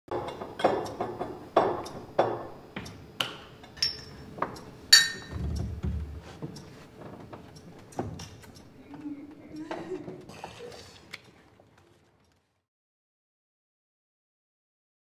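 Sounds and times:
drinking glasses clinking: 3.8s - 4.2s, 4.9s - 5.3s.

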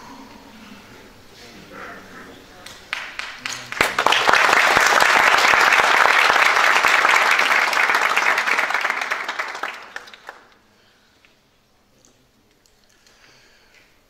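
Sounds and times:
audience applauding: 2.6s - 10.6s.

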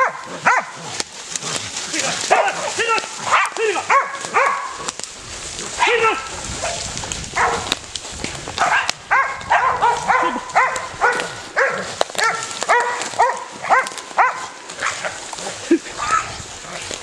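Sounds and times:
dog barking: 0.0s - 0.8s, 2.3s - 2.6s, 3.2s - 4.8s, 7.4s - 7.7s, 8.6s - 15.1s.

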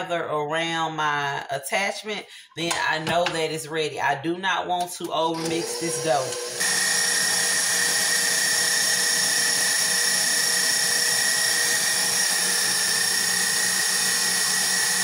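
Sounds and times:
stand mixer motor whine: 5.4s - 15.0s.

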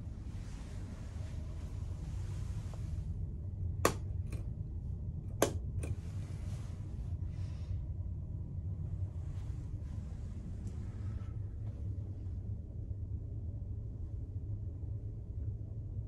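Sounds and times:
steady low hum: 0.0s - 16.0s
wall rocker switch clicking: 3.8s - 4.4s, 5.3s - 6.0s.

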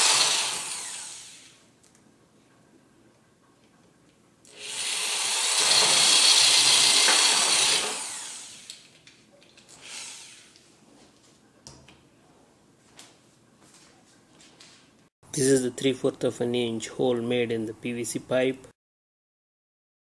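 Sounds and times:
electric drill cutting plastic pipe: 0.0s - 1.6s, 4.5s - 8.9s, 9.8s - 10.6s.

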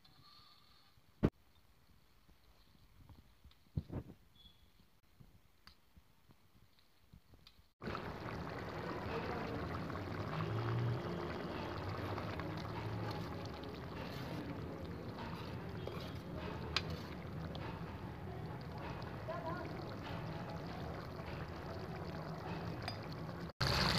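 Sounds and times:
gravy bubbling in a pot: 7.8s - 23.9s.

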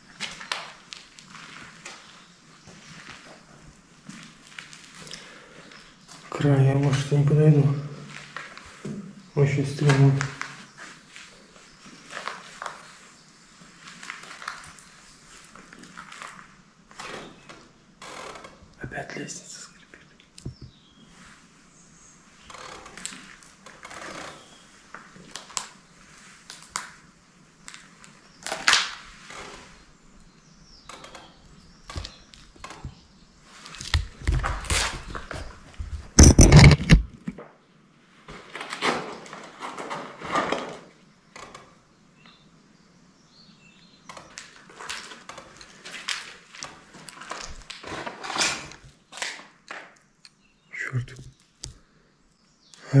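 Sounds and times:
footsteps crunching on rubble: 0.0s - 7.2s, 9.8s - 16.6s, 32.0s - 37.4s.

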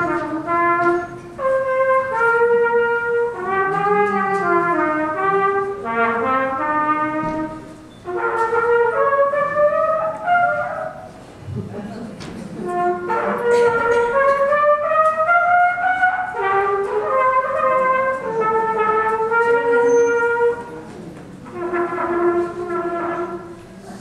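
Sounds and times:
harmonicas playing slow tune: 0.0s - 11.6s, 12.4s - 24.0s.

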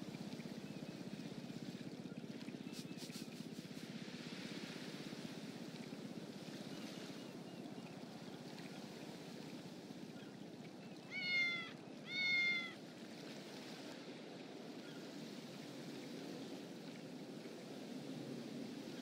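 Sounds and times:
cat meowing: 11.1s - 12.8s.

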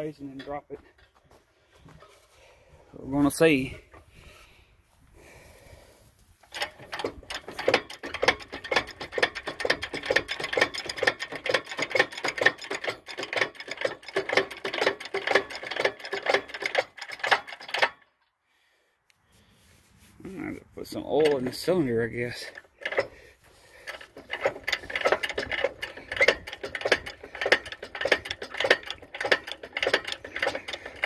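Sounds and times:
crane mechanism metallic clicks: 6.4s - 18.3s, 21.0s - 23.2s, 23.8s - 31.0s.

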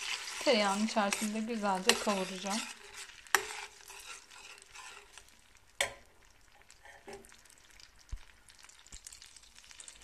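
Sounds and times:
metal spoon stirring: 0.0s - 6.0s
butter sizzling in a pot: 0.0s - 10.0s.

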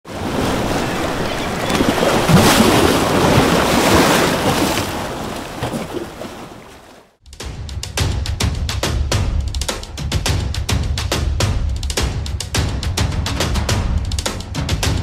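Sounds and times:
waves: 0.0s - 7.2s
wind: 0.0s - 7.2s.

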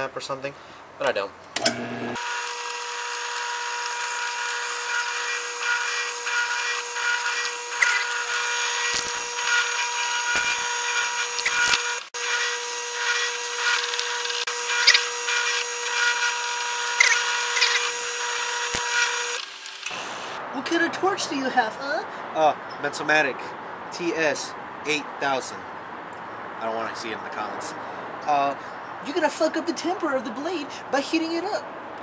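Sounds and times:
drill bit cutting wood: 1.6s - 20.4s
drill press motor whine: 1.6s - 20.4s.

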